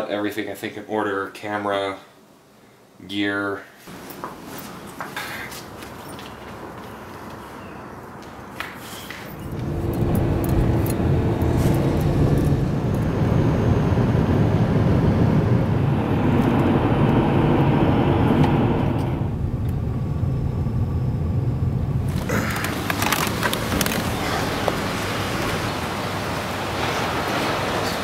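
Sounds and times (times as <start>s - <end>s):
car engine and tyre rumble: 5.6s - 28.0s.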